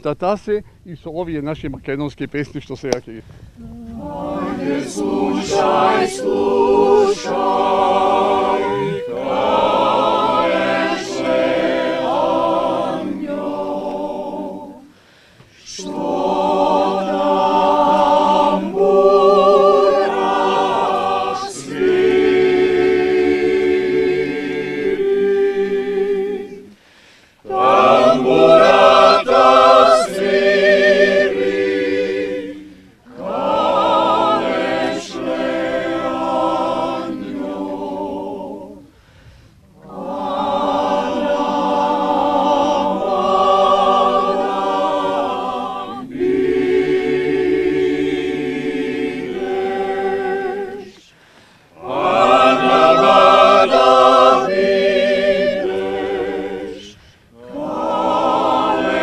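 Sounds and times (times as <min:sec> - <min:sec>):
mixed choir singing a cappella: 0:03.6 - 0:59.0.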